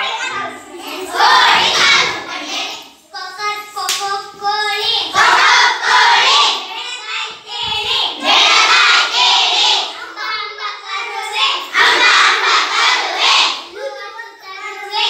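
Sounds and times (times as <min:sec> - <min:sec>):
children singing and chanting: 0:00.0 - 0:15.0
sharp clap: 0:03.8 - 0:04.2.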